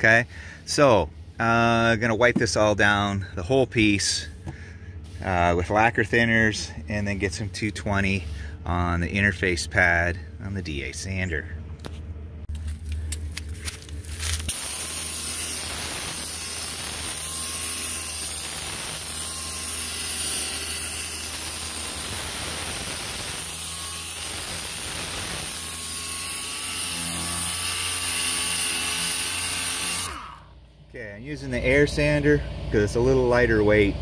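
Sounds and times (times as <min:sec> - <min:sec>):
pneumatic sander running: 0:13.4 - 0:30.5.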